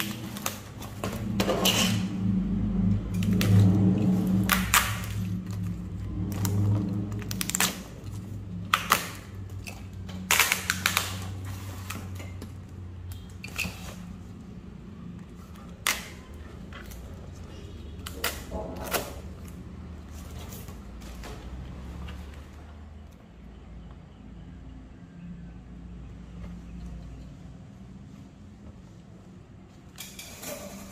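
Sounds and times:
plastic wrapping and cardboard box: 0.0s - 22.9s.

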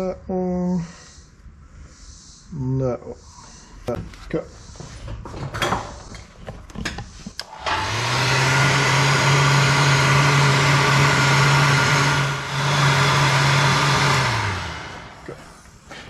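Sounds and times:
motor-driven machine whirring: 7.3s - 15.4s.

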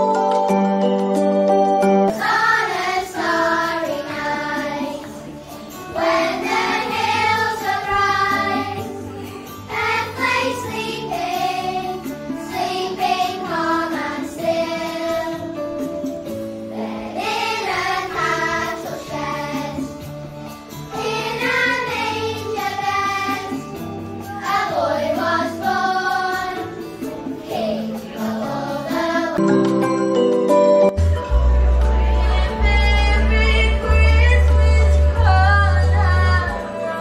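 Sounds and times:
instrumental accompaniment: 0.0s - 37.0s
children's choir singing: 2.1s - 15.9s, 16.7s - 20.2s, 20.9s - 29.4s.

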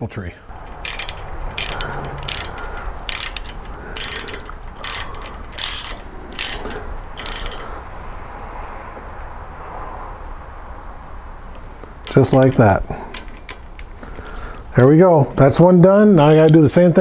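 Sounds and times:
ratchet wrench clicking: 0.5s - 7.8s, 12.0s - 13.9s.

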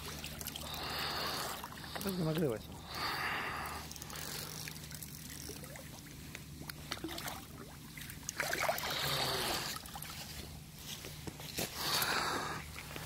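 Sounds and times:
lake water splashing at shoreline: 4.3s - 10.3s.

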